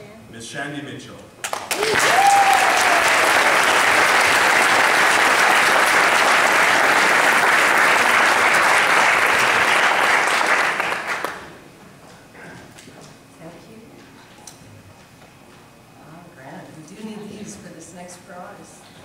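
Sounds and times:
audience applauding: 0:01.4 - 0:11.6.

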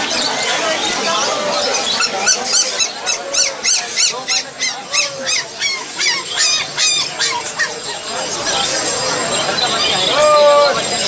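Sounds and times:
animal high-pitched calls: 0:01.0 - 0:11.0.

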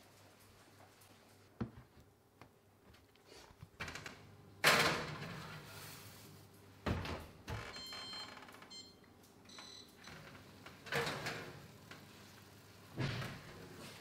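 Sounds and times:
oven door shutting: 0:10.3 - 0:14.0.

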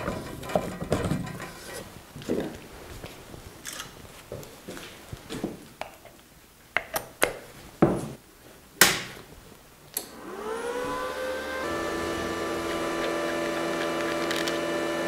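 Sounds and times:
welder cooling fan whirring: 0:10.0 - 0:15.0.

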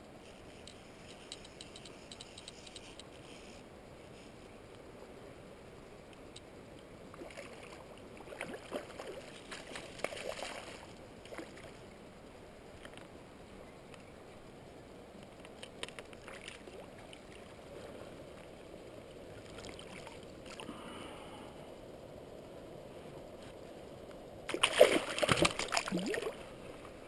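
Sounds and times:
faint river water: 0:00.0 - 0:27.0
fish splashing at water surface: 0:24.5 - 0:26.4.

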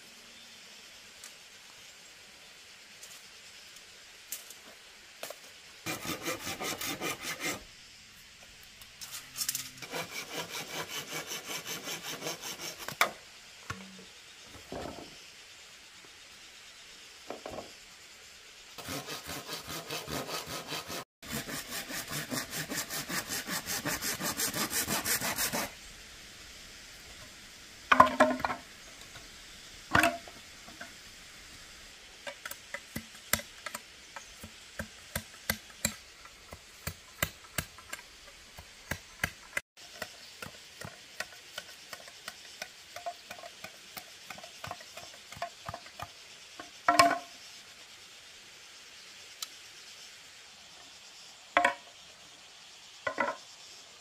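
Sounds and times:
hand saw cutting bamboo: 0:05.9 - 0:07.6, 0:09.7 - 0:13.1, 0:18.8 - 0:25.8.

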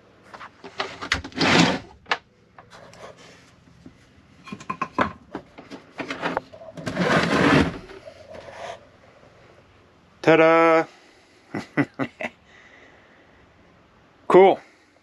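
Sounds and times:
battery scraping across plywood: 0:00.4 - 0:01.9, 0:05.8 - 0:08.8.

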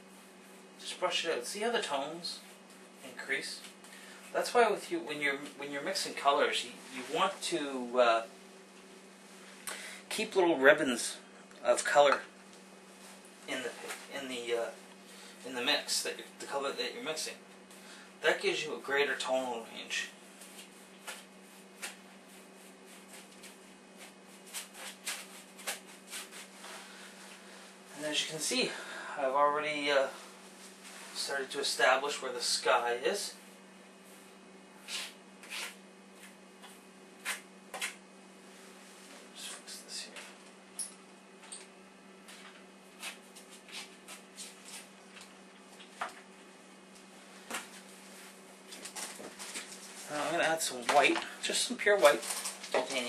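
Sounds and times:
steady low hum: 0:00.0 - 0:53.0
paintbrush swishing strokes: 0:20.2 - 0:27.4, 0:33.3 - 0:37.4
paintbrush scratching on canvas: 0:33.3 - 0:37.4.

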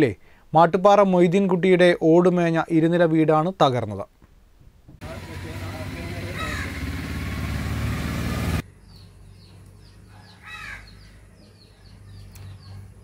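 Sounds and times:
vehicle engine running loudly: 0:05.0 - 0:08.6
small birds chirping: 0:05.1 - 0:13.0
crow cawing: 0:06.0 - 0:07.2, 0:10.4 - 0:11.0.

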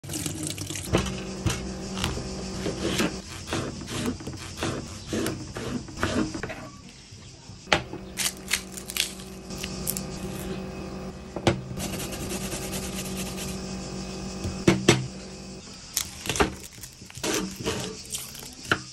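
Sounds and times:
steady low hum: 0:07.6 - 0:16.4
garlic scraping on metal grater: 0:16.0 - 0:18.7.

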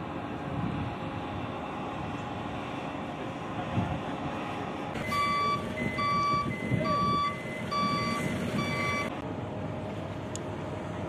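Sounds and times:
low machinery rumble: 0:00.0 - 0:11.0
electronic warning beeps: 0:05.0 - 0:09.1.

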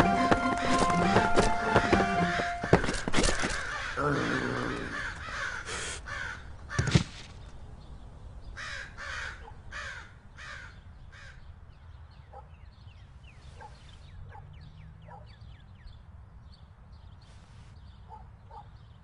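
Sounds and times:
crows cawing: 0:00.0 - 0:07.0, 0:08.5 - 0:11.5
small birds chirping: 0:00.0 - 0:19.0.

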